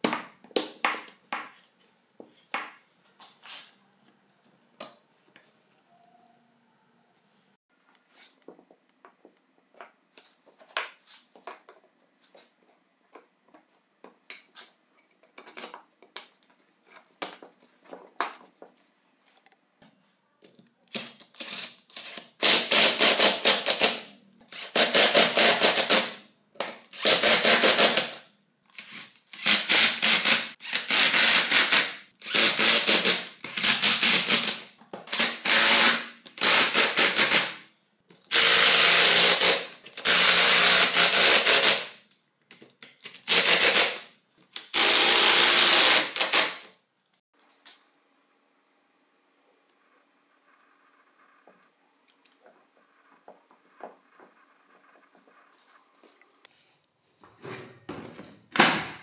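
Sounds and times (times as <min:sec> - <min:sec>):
electric screwdriver whirring: 0:20.9 - 0:26.1, 0:27.0 - 0:28.2, 0:28.8 - 0:37.5, 0:38.3 - 0:41.8, 0:43.2 - 0:44.0, 0:44.6 - 0:46.7.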